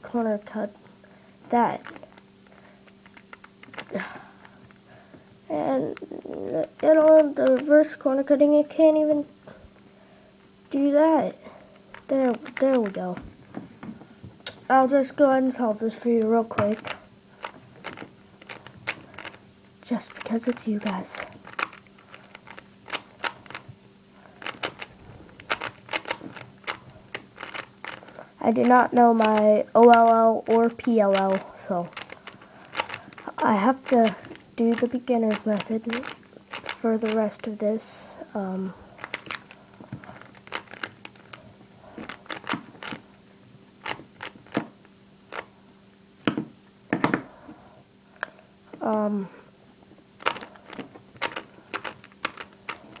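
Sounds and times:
faint steady hum: 0.0 - 53.0
plastic puzzle cube clicking: 1.8 - 2.2, 3.0 - 4.0, 11.9 - 13.2, 16.6 - 23.7, 24.4 - 37.3, 39.0 - 41.4, 42.0 - 43.0, 43.8 - 44.7, 50.2 - 53.0.

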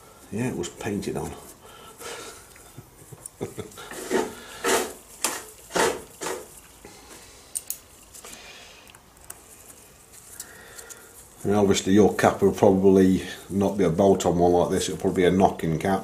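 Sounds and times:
rustling: 0.0 - 16.0
scraping strokes: 3.8 - 7.4
small metal parts clicking: 7.5 - 9.4.

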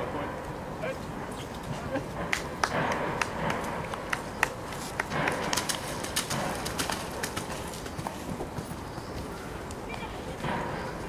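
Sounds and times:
horse hooves cantering on sand: 2.7 - 10.6.

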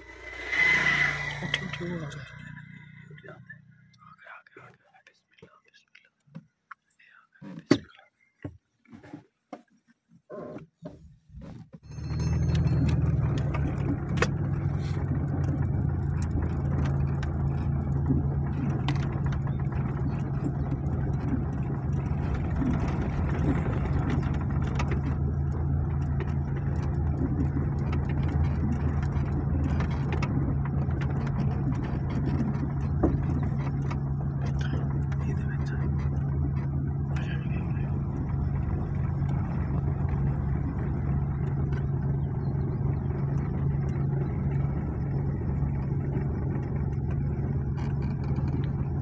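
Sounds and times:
car engine running: 0.0 - 5.8, 10.8 - 49.0
knocks and rattles: 10.8 - 49.0.

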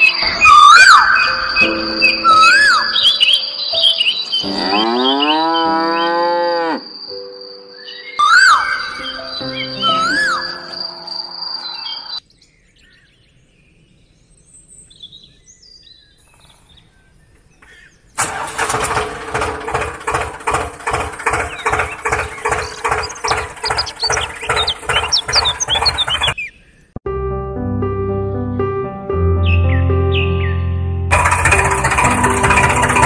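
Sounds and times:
faint bird chirps: 7.1 - 18.1
tractor engine thumping: 18.2 - 26.4, 31.1 - 33.0.

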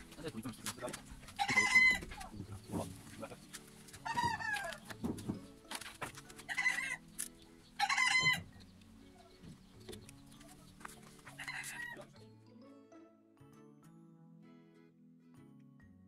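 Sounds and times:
chickens calling: 0.0 - 12.1
faint background music: 0.0 - 16.0.

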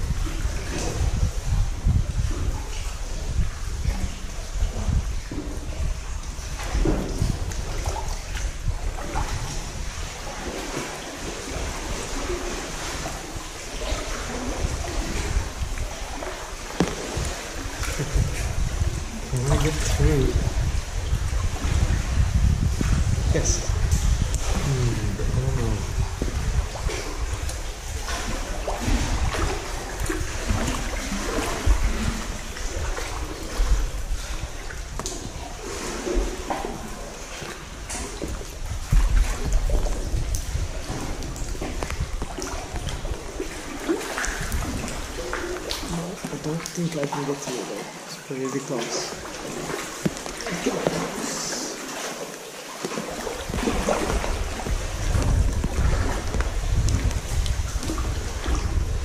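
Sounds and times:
water lapping against kayak hull: 0.0 - 59.0
seawater splashing against rock: 4.9 - 59.0
dull low thumps: 14.6 - 30.8, 53.4 - 59.0
low rumble: 16.8 - 35.4.

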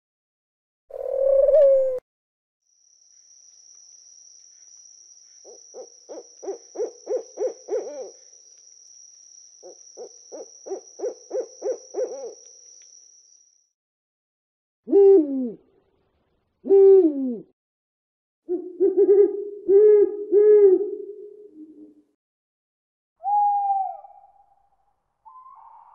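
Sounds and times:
owl hooting: 0.9 - 2.0, 5.4 - 8.3, 9.6 - 12.5, 18.5 - 21.0, 23.2 - 24.4
high insect trill: 2.6 - 13.8.

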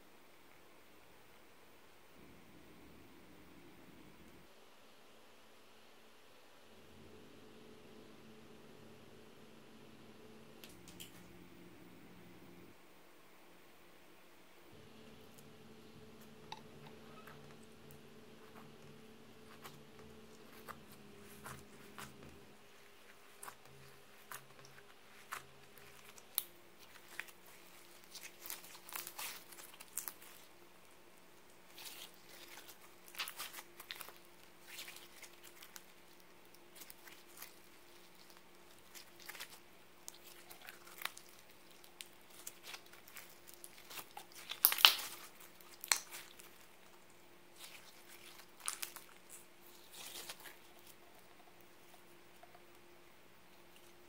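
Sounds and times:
slime sticky clicks and crackles: 31.7 - 46.9.

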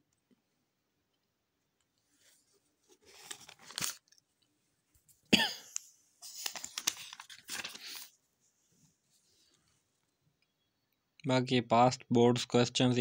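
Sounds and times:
book pages turning: 2.2 - 4.2, 6.2 - 8.2.

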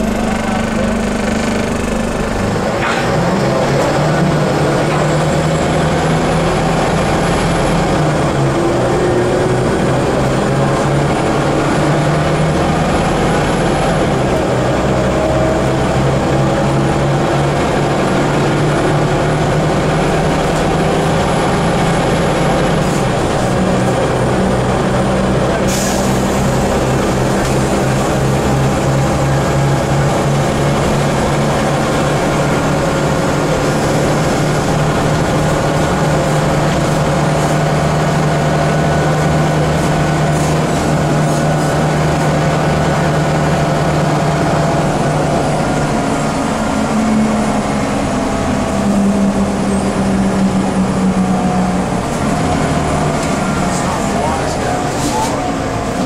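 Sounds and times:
bus diesel engine running: 0.0 - 56.0
drivetrain whine: 0.0 - 56.0.

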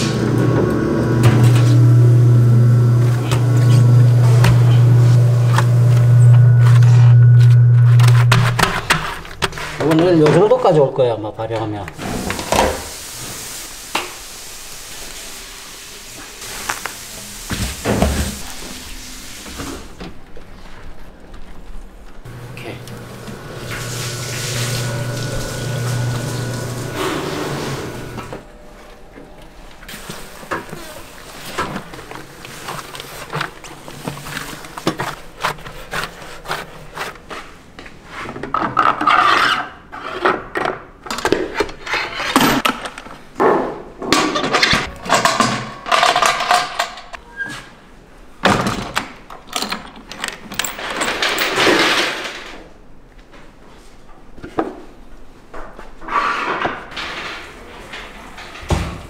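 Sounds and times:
rubbing and scraping: 22.3 - 28.4, 29.9 - 40.4.

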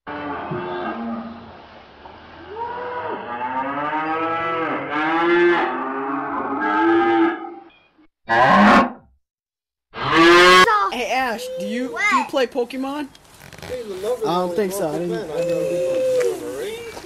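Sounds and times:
cows mooing: 2.4 - 7.6, 10.0 - 10.7, 14.0 - 17.0.

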